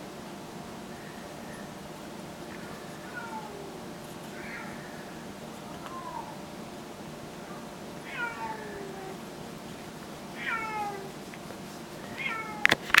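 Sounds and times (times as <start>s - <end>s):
kitten meowing: 3.0s - 3.8s, 4.4s - 6.4s, 8.0s - 9.2s, 10.4s - 11.2s, 12.1s - 12.8s.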